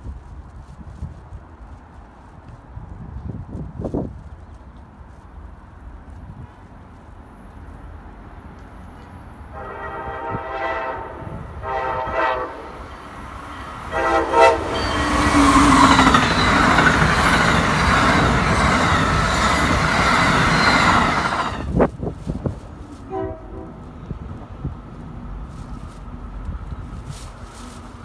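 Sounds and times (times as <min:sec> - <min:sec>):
train rushing past: 0:05.5 - 0:28.0
train horn blasts: 0:09.5 - 0:16.5, 0:23.0 - 0:23.9.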